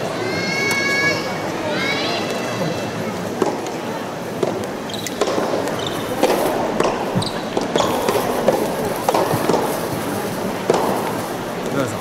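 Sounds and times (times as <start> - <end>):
tennis ball hit and bouncing: 3.4 - 11.8
hall murmur: 4.4 - 12.0.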